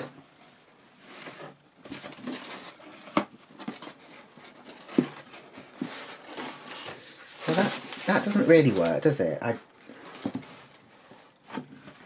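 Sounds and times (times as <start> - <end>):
cardboard rustling and scraping: 0.8 - 12.0.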